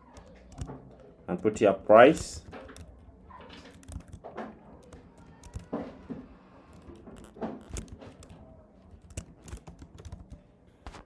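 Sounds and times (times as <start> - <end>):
computer keyboard keystrokes: 3.7 - 4.2, 4.8 - 5.7, 9.0 - 10.4.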